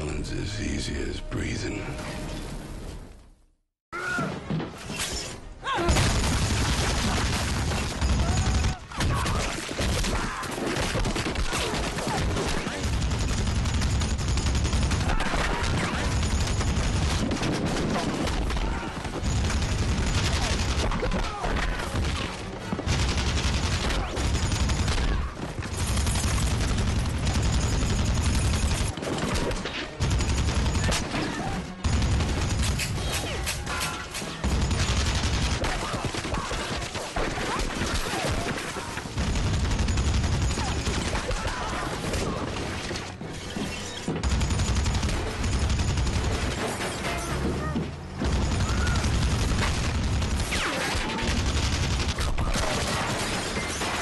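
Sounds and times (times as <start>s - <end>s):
machine gun firing bursts: 10.8s - 18.3s, 19.0s - 21.1s, 21.8s - 29.3s, 30.0s - 31.0s, 31.8s - 33.0s, 34.4s - 37.0s, 39.1s - 41.3s, 44.2s - 46.6s, 48.2s - 53.8s.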